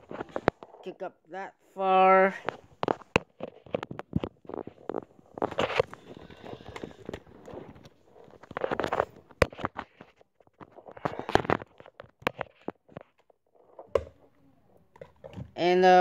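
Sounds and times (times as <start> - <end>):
microphone handling clicks and rustles: 0.0 - 0.9, 2.4 - 14.2.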